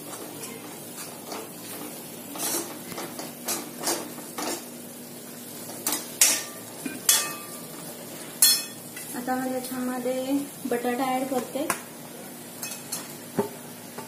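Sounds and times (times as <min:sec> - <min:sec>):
spoon clinking against metal pan: 0:06.2 - 0:07.5, 0:08.4 - 0:08.8.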